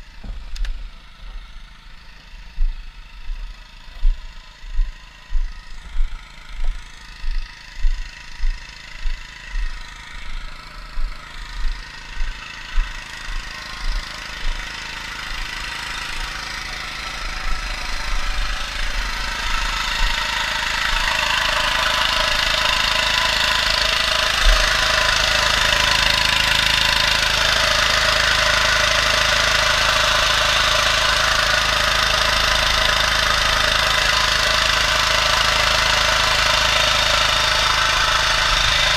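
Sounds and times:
petrol water pump running: 0.0 - 38.9
footsteps thudding: 0.2 - 0.8.

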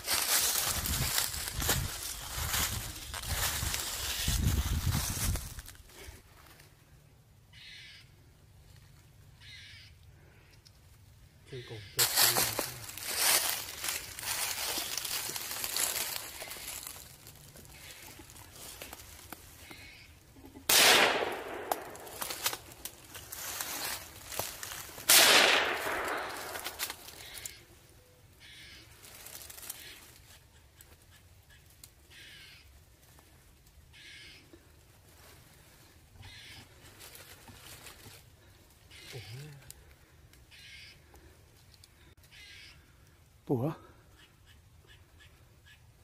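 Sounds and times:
crows cawing: 7.5 - 8.3, 9.4 - 10.7, 11.5 - 32.9, 33.9 - 34.8, 35.8 - 43.2, 43.8 - 45.9
gunshots echoing: 20.7 - 22.4, 25.1 - 27.1.

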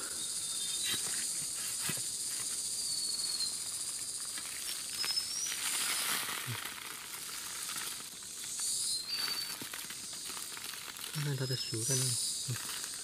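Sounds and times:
faint whistling chirps: 0.0 - 1.6, 2.6 - 6.2, 8.4 - 9.7
insects buzzing: 0.0 - 13.0
dry leaves and soil crackling: 0.4 - 13.0.

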